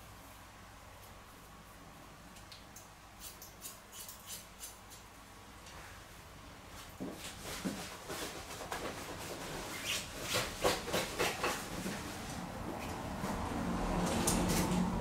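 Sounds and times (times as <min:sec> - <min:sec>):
scissors snipping hair: 0:02.5 - 0:05.0.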